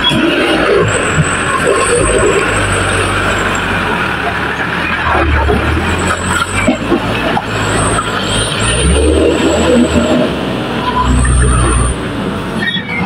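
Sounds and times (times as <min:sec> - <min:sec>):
truck engine labouring: 0:00.0 - 0:13.0.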